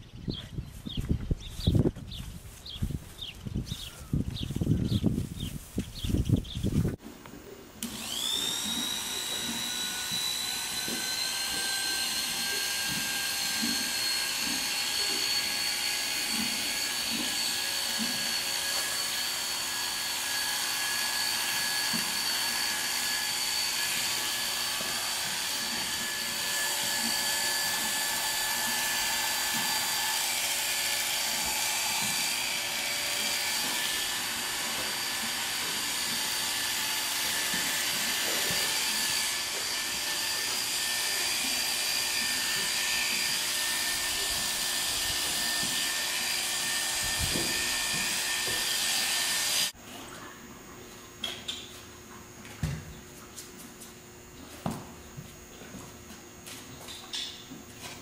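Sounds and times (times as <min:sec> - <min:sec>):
electric clippers whining: 0:07.8 - 0:49.8.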